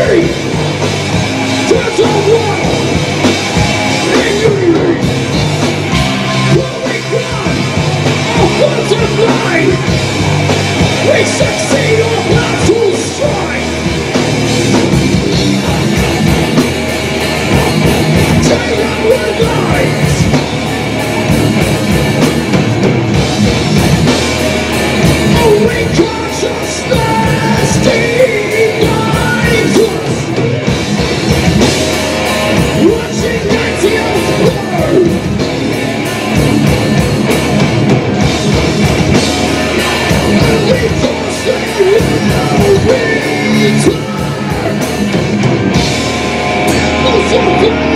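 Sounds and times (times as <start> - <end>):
metal band playing: 0.0 - 47.9
person singing: 17.5 - 21.0, 25.3 - 30.6, 32.2 - 37.0, 39.2 - 45.0.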